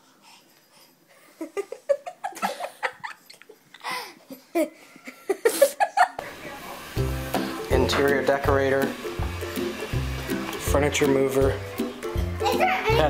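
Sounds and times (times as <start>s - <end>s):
giggling laughter: 1.3s - 3.6s, 4.3s - 6.2s.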